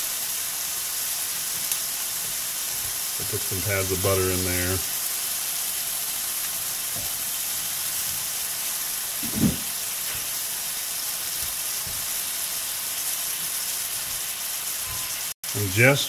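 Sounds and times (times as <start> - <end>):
steaks sizzling in a pan: 0.0 - 16.0
low thump: 9.2 - 9.7.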